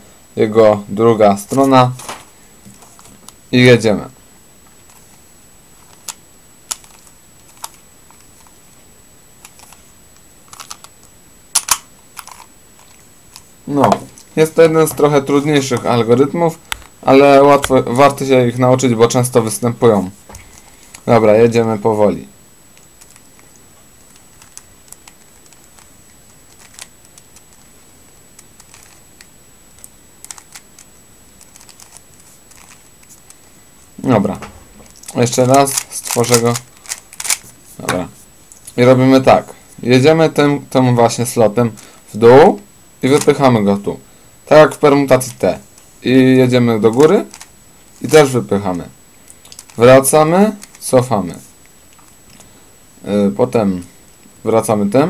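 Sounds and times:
puzzle cube clicking as turned: 0:05.8 - 0:08.5, 0:10.5 - 0:10.9, 0:11.6 - 0:13.5, 0:23.0 - 0:23.5, 0:24.1 - 0:25.9, 0:26.5 - 0:27.7, 0:28.4 - 0:33.3, 0:35.0 - 0:37.5, 0:46.9 - 0:48.2, 0:49.4 - 0:49.8.

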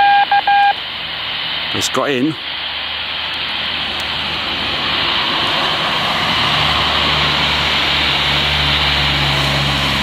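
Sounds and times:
loud static hiss from radio speaker: 0:00.0 - 0:05.0.

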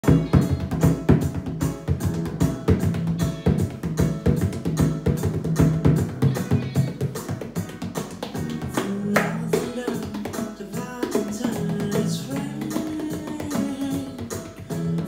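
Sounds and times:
frame drum beaten fast: 0:00.0 - 0:08.8
recorded song instrumental: 0:00.0 - 0:15.0.

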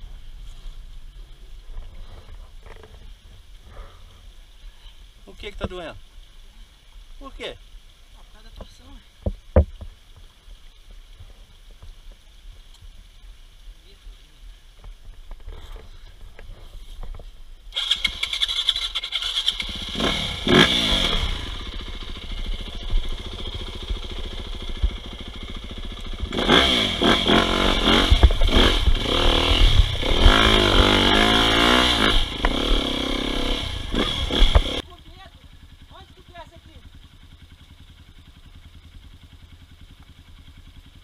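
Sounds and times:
dirt bike engine revving: 0:17.7 - 0:34.9.

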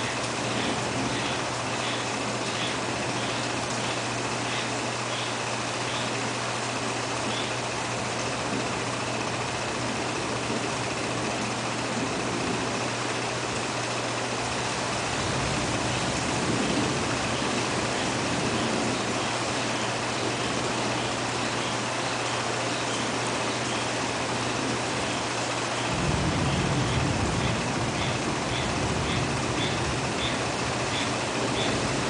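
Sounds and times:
thunder rumble: 0:00.0 - 0:04.3, 0:07.8 - 0:21.4, 0:25.9 - 0:32.0
steady rain: 0:00.0 - 0:32.0.

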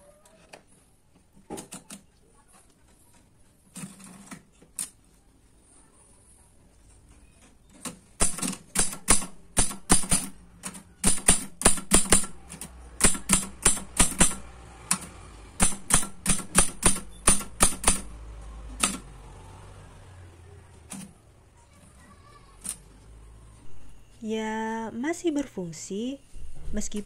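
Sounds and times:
manual typewriter typing: 0:07.8 - 0:18.2, 0:18.8 - 0:19.1.

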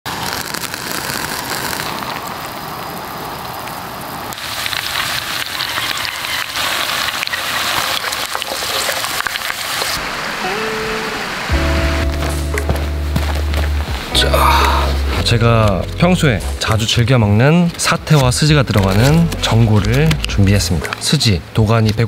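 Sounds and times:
ribs sizzling in hot oil: 0:04.4 - 0:10.0
music: 0:11.5 - 0:21.1.

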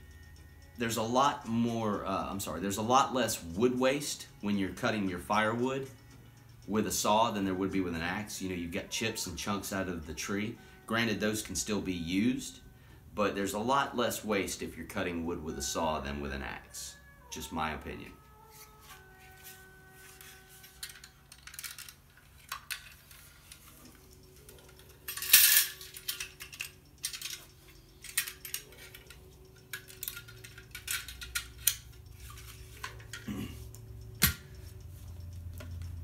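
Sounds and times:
metal clicks and clinks: 0:20.6 - 0:33.3.

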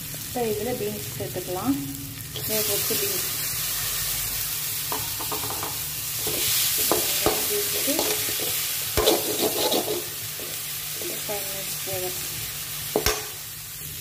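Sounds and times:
beans sizzling in oil: 0:00.0 - 0:14.0
steel spoon scraping pan: 0:06.2 - 0:10.6.

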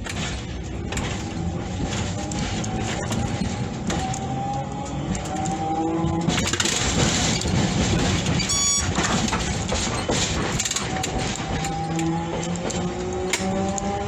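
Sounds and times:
tram rumbling: 0:00.0 - 0:14.0
short electronic beep: 0:08.4 - 0:09.0.

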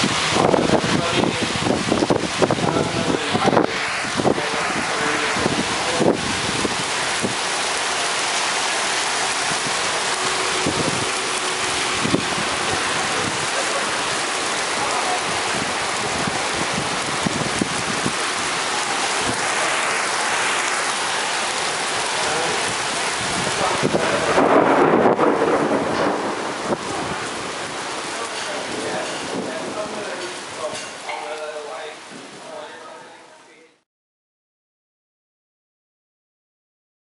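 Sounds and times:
heavy rain on street: 0:00.0 - 0:33.8
close drips and splashes: 0:05.0 - 0:24.3, 0:25.4 - 0:32.3.

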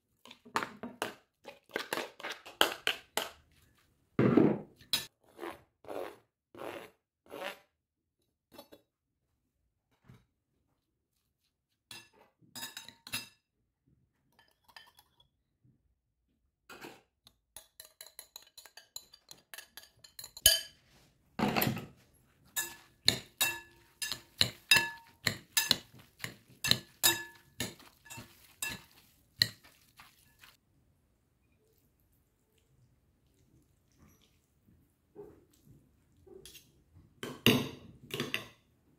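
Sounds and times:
cutlery clinking against glass bowls: 0:11.9 - 0:13.4, 0:14.4 - 0:15.2, 0:17.6 - 0:20.8, 0:21.4 - 0:30.6, 0:36.4 - 0:38.6
spoon scraping glass bowl: 0:22.4 - 0:30.6.

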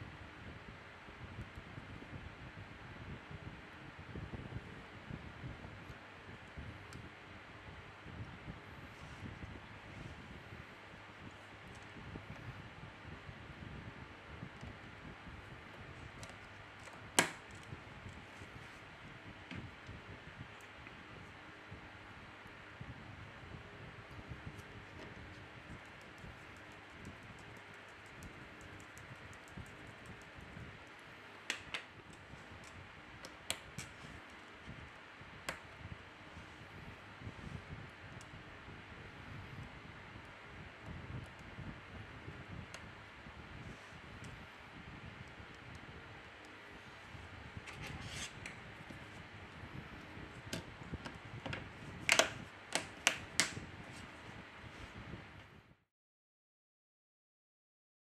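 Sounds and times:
small screwdriver clicks and taps: 0:50.5 - 0:53.5
plastic phone frame clicking: 0:52.1 - 0:53.6.

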